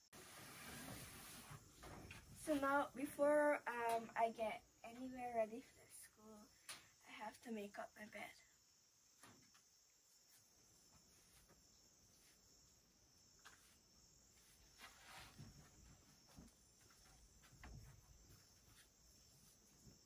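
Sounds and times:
insect chorus: 0:00.2 - 0:20.0
cloth rustling: 0:14.4 - 0:16.4.

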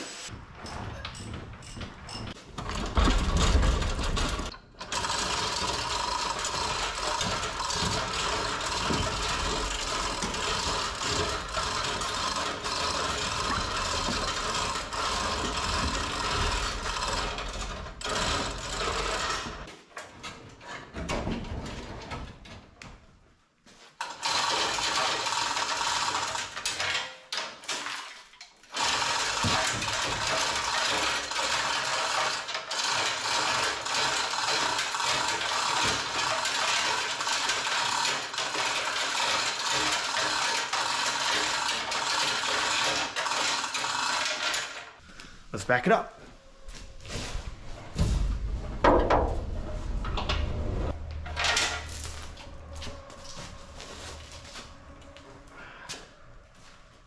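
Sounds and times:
mechanical clatter of tools: 0:00.6 - 0:20.9, 0:24.0 - 0:45.0, 0:50.1 - 0:54.2.

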